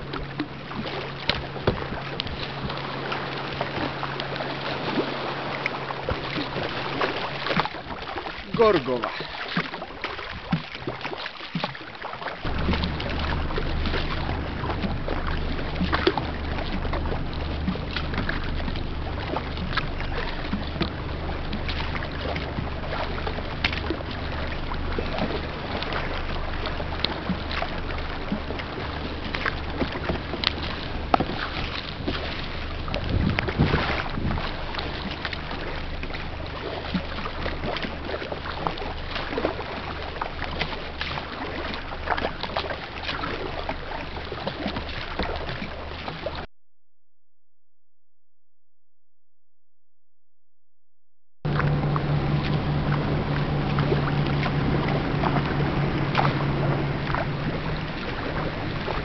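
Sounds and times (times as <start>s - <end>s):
paddle splashing in water: 0.0s - 46.5s, 51.5s - 59.0s
steady low hum: 12.4s - 46.5s, 51.5s - 59.0s
wind on microphone: 28.1s - 35.1s.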